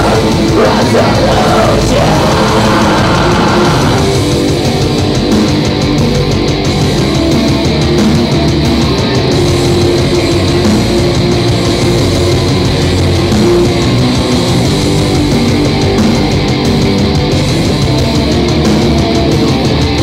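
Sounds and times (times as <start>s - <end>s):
heavy metal band playing: 0.0s - 20.0s.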